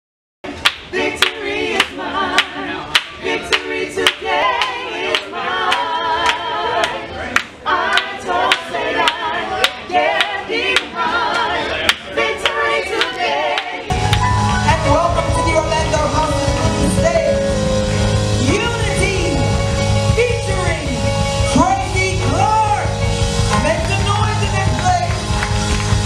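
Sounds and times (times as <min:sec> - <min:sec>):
group singing in harmony: 0:00.5 - 0:20.1
hand claps: 0:00.6 - 0:14.3, 0:24.8 - 0:26.0.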